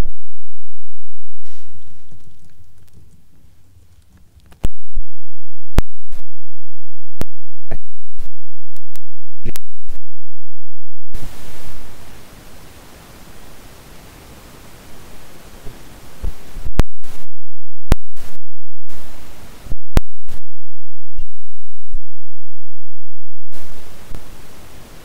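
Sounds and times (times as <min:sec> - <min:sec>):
microphone hiss: 0:01.5 - 0:04.6, 0:11.2 - 0:17.3, 0:18.9 - 0:19.8, 0:23.5 - 0:25.0.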